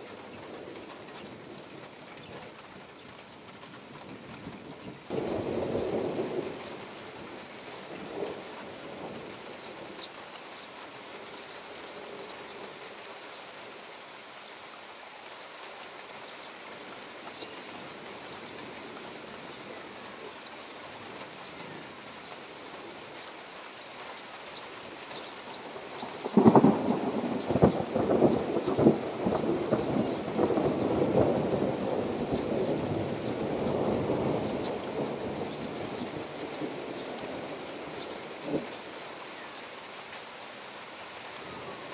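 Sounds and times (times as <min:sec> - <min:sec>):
steady rain: 0:00.0 - 0:41.9
thunder clap and rumbles: 0:26.2 - 0:37.6.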